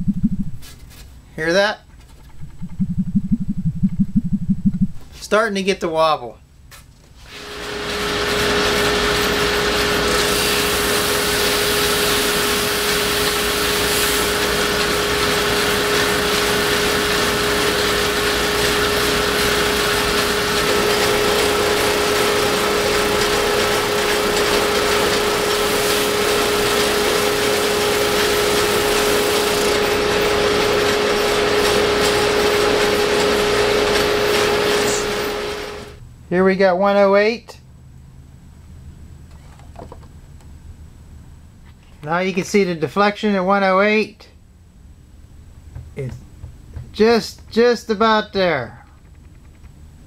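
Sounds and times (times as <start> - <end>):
drum sander sanding wood: 7.2 - 36.0.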